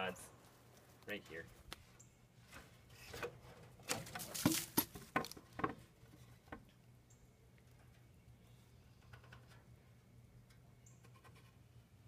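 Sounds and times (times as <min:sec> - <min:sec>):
wooden board knocking and scraping: 0:03.2 - 0:05.8.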